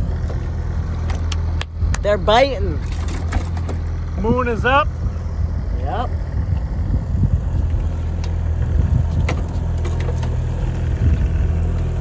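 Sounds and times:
boat engine humming: 0:00.0 - 0:12.0.

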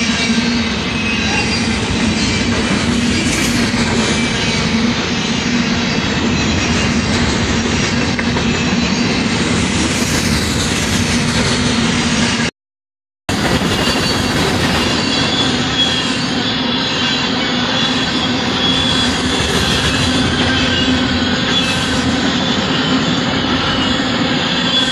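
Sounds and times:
faint high wheel squeal: 0:00.0 - 0:07.2, 0:13.6 - 0:24.9
freight train wheels rumbling on rails: 0:00.0 - 0:12.5, 0:13.3 - 0:24.9.

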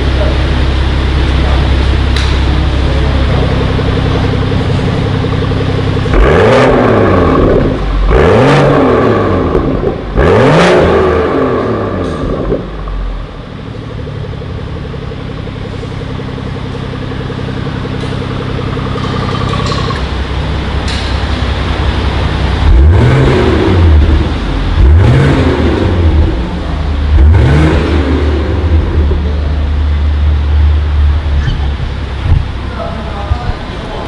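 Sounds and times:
car engine idling and revving: 0:00.0 - 0:34.0.

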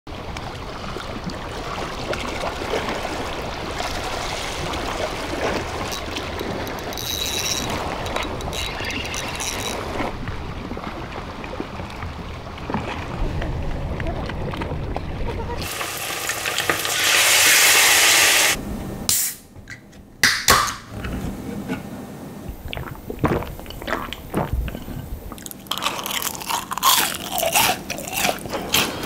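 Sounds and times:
sea water washing against concrete: 0:00.1 - 0:17.9
wind on microphone: 0:07.7 - 0:15.6, 0:24.3 - 0:25.3.

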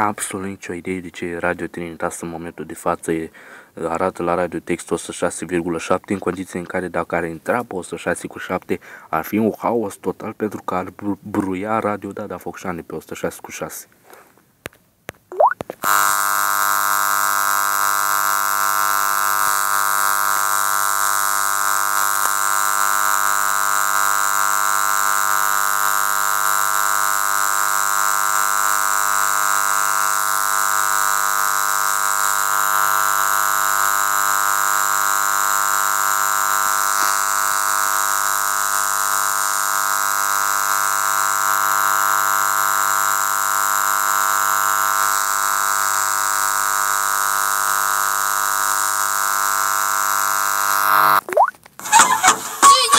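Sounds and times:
steady buzzing tone: 0:15.2 - 0:52.9.

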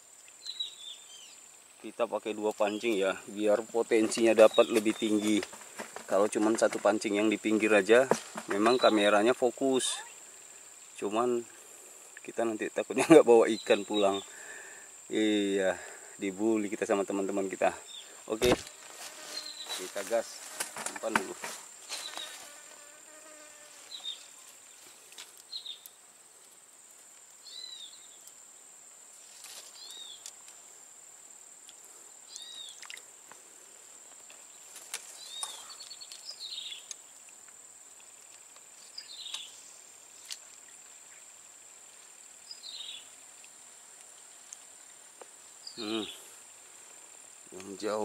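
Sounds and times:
bird chirping: 0:00.2 - 0:01.5, 0:02.6 - 0:07.4, 0:08.2 - 0:10.2, 0:25.5 - 0:26.0, 0:27.4 - 0:28.3, 0:29.7 - 0:30.3, 0:32.3 - 0:32.9, 0:34.5 - 0:37.2, 0:38.9 - 0:39.6, 0:42.4 - 0:43.1.

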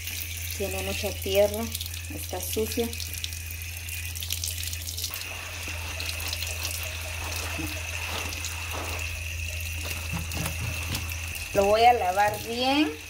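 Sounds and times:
tap water running: 0:00.0 - 0:13.0
steady low hum: 0:03.0 - 0:13.0
sponge scrubbing squash: 0:05.1 - 0:13.0.

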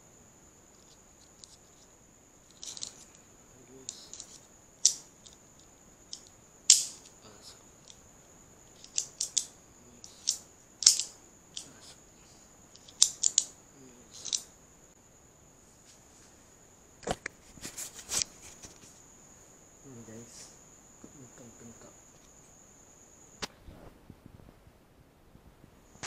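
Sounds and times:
knocks and handling noise: 0:00.7 - 0:01.9, 0:02.5 - 0:03.2, 0:03.8 - 0:07.2, 0:08.6 - 0:11.8, 0:12.7 - 0:14.5
metal pin clicking and scraping: 0:00.7 - 0:01.9, 0:02.5 - 0:03.2, 0:03.8 - 0:07.2, 0:07.8 - 0:08.0, 0:08.6 - 0:11.9, 0:12.7 - 0:14.5.

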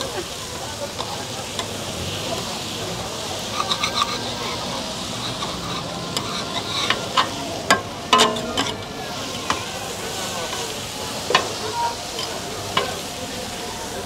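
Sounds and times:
meat and onions sizzling: 0:00.0 - 0:14.0
utensil scraping metal plate: 0:03.5 - 0:08.8.

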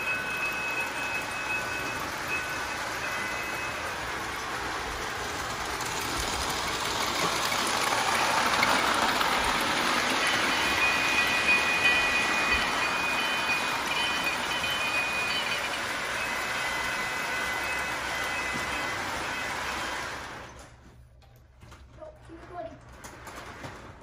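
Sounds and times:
thin high whine: 0:00.0 - 0:08.8
model train wheels rattling on rails: 0:00.0 - 0:20.8, 0:22.0 - 0:24.0.

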